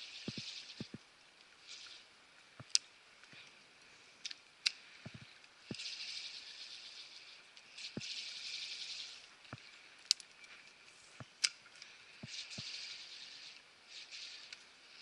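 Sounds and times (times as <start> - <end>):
fishing reel ticking: 0.0 - 0.9, 12.2 - 14.6.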